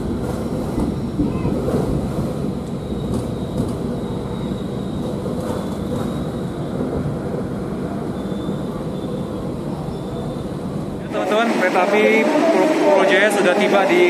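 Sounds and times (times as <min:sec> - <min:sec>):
train rumbling: 0:00.0 - 0:14.0
faint high squeal: 0:02.7 - 0:06.9, 0:08.0 - 0:10.6.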